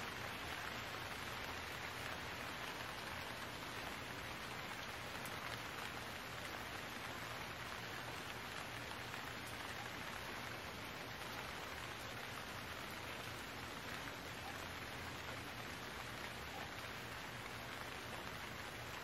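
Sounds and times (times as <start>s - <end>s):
rain falling: 0.0s - 19.0s.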